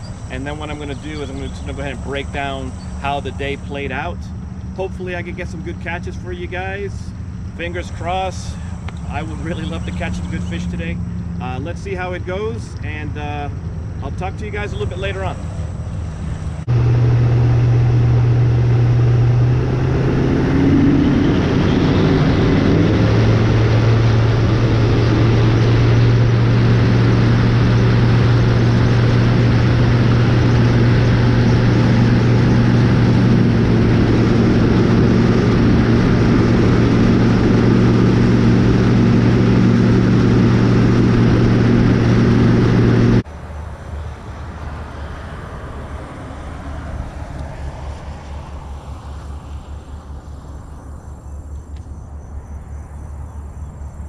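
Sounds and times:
outboard motor running: 0:07.1 - 0:43.2.

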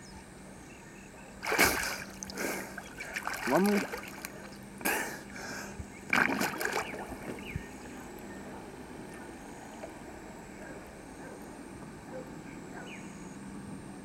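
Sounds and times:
water and breeze: 0:01.3 - 0:14.0
swimmer splashing: 0:01.4 - 0:04.6, 0:06.1 - 0:07.5.

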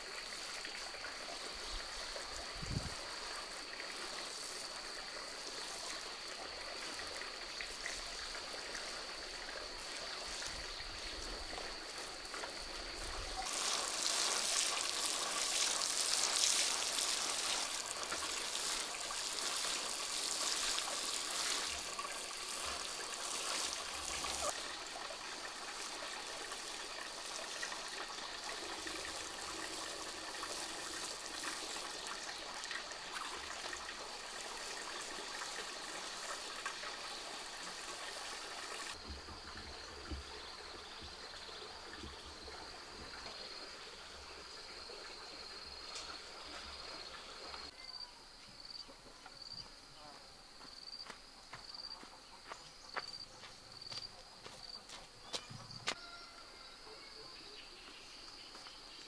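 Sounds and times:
garden hose spraying water: 0:00.0 - 0:47.8
insects trilling: 0:00.0 - 0:59.0
light footsteps: 0:50.1 - 0:56.0.

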